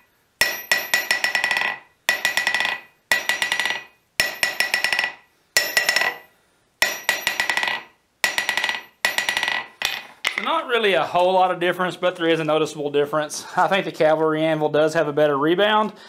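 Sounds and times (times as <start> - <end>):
hammer bouncing on anvil: 0.4 - 10.6.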